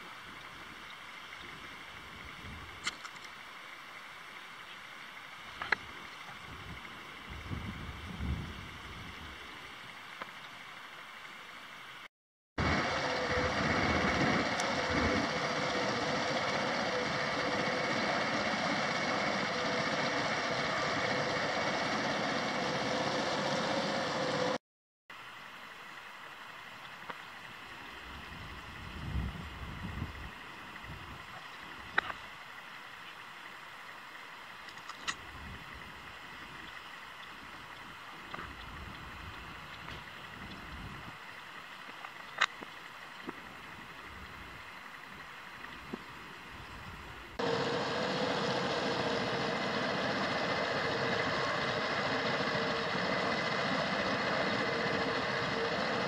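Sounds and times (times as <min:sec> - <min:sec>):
soft outdoor hiss: 0:00.0 - 0:12.1, 0:25.1 - 0:47.6
river water: 0:00.0 - 0:56.0
wind: 0:00.0 - 0:56.0.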